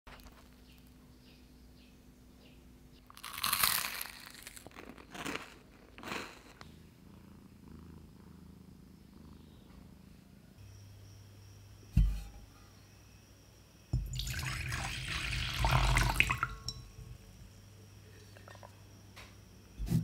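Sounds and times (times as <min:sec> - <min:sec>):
crusty bread tearing: 0:03.1 - 0:06.6
cat purring: 0:06.6 - 0:10.6.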